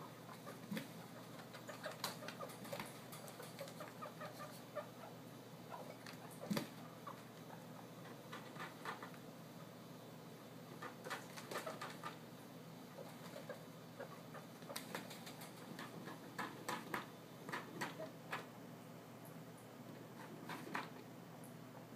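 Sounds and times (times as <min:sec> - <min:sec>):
guinea pigs squeaking: 0:00.0 - 0:09.3, 0:10.7 - 0:12.3, 0:12.9 - 0:18.5, 0:19.9 - 0:21.0.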